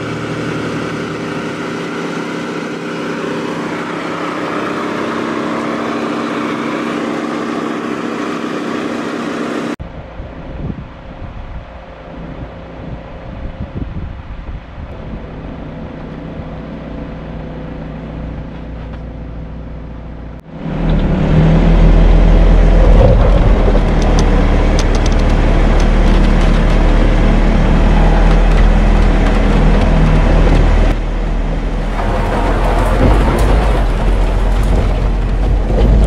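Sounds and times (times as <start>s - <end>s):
off-road vehicle engine running: 0.0s - 36.0s
road noise: 0.0s - 36.0s
rattles and clicks: 22.7s - 36.0s.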